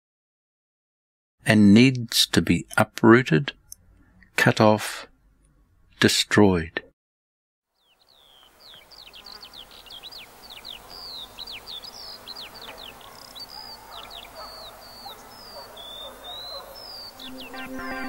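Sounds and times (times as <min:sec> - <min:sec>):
small birds chirping: 0:07.7 - 0:18.0.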